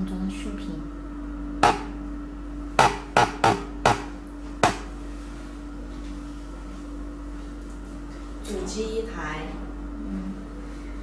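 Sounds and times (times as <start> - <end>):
steady low hum: 0.0 - 11.0
sharp knocks on hard surface: 1.6 - 1.9, 2.8 - 4.9.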